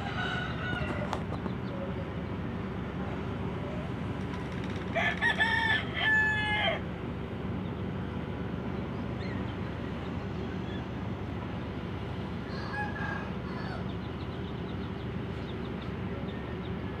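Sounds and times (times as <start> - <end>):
rooster crowing: 0.0 - 1.2, 4.9 - 6.8, 12.4 - 14.0
ship engine droning: 0.0 - 17.0.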